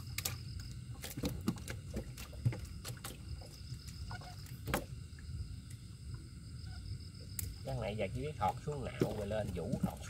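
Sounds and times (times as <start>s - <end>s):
fish slapping and splashing water: 0.0s - 5.0s, 8.4s - 10.0s
low steady rumble: 0.0s - 10.0s.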